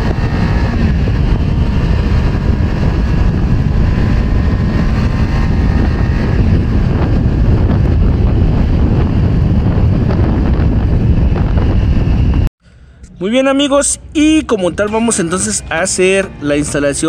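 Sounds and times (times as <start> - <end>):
wind rushing over microphone: 0.0 - 12.5
faint motorcycle engine: 0.0 - 17.0.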